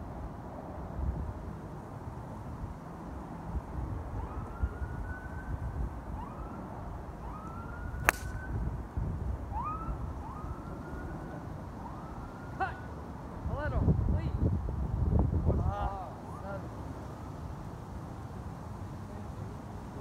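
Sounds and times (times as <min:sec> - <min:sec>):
wind rumbling on microphone: 0:02.4 - 0:11.2, 0:13.4 - 0:16.0
golf club striking ball: 0:08.0 - 0:08.4.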